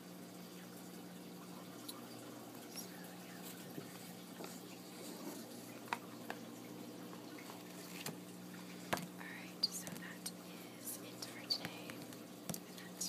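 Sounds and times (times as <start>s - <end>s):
faint low hum: 0.0s - 13.0s
paper pages rustling: 7.4s - 8.2s.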